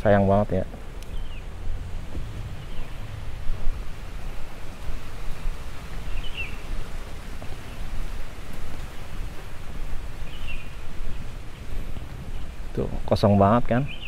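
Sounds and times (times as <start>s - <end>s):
low unsteady rumbling: 0.0s - 14.0s
small bird chirping: 0.9s - 1.8s, 2.4s - 3.2s, 6.0s - 6.7s, 10.2s - 12.6s.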